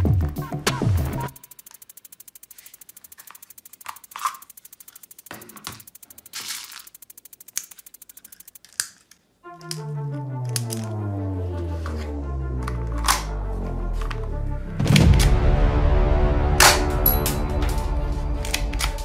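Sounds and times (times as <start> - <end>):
fast even ticking: 1.0 - 8.8
sharp clicks and clacks: 1.2 - 9.2.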